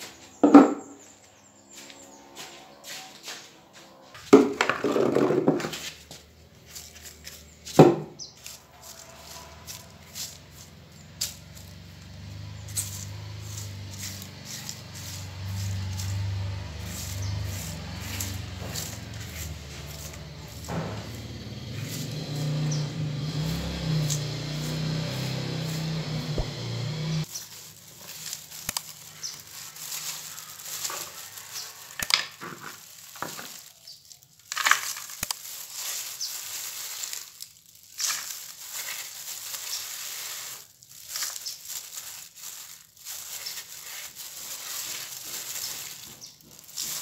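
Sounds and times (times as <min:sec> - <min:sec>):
dry leaves rustling and scraping: 0:00.0 - 0:47.0
sharp crunch: 0:12.6 - 0:47.0.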